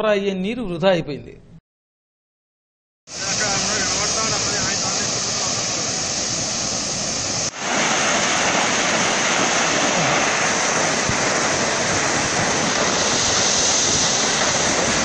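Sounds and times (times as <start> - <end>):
high-pressure water spray hissing: 3.1 - 15.0.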